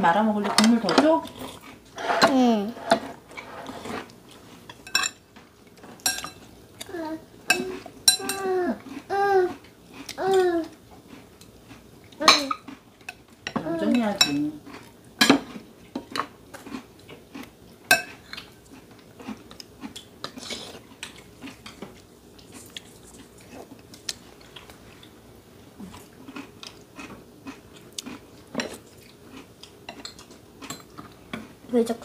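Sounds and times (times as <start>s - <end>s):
utensils clinking against bowls: 4.7s - 5.2s, 6.0s - 6.4s, 7.5s - 8.5s, 12.2s - 14.5s
quiet chewing: 6.8s - 13.5s, 14.6s - 31.6s.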